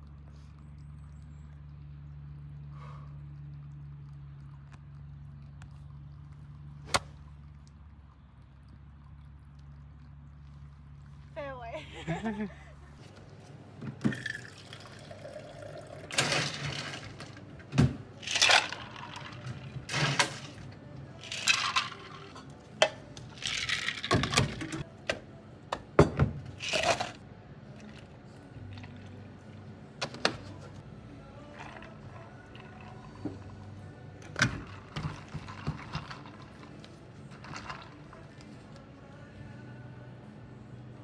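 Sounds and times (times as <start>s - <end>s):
liquid pouring into plastic cup: 14.0s - 17.4s, 18.2s - 22.4s, 31.4s - 33.6s, 34.2s - 38.7s.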